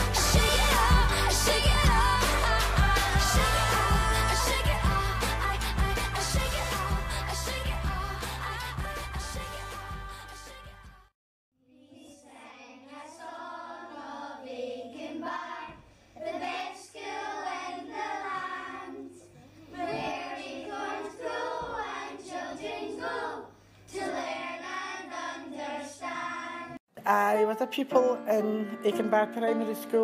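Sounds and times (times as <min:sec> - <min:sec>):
children singing: 0:00.0 - 0:10.4, 0:11.8 - 0:26.8.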